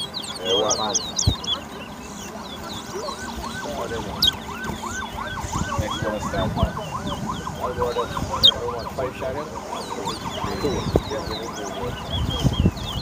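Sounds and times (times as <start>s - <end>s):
finches whistling song: 0.0s - 13.0s
high chirps: 0.0s - 13.0s.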